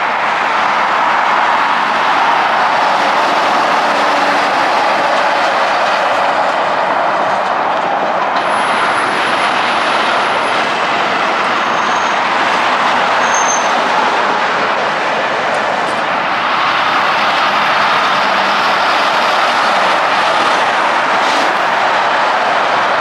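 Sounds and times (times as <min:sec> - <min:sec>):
heavy vehicles rolling past: 0:00.0 - 0:23.0
faint high squeals: 0:13.2 - 0:13.8.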